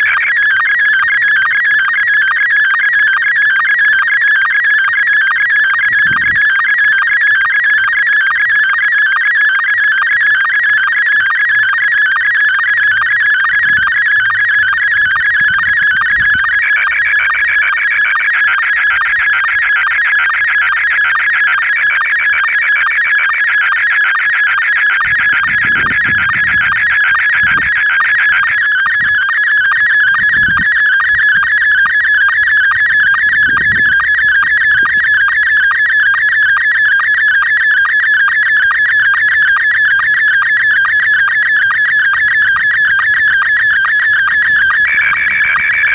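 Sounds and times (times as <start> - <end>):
warbling radio image signal tones: 24.4 - 45.9.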